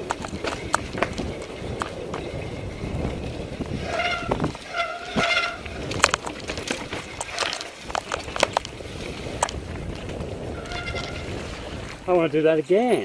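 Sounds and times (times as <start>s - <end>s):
mountain bike rattling over rocks: 0.0s - 12.1s
bike brake squeals: 3.8s - 5.9s, 10.5s - 11.4s.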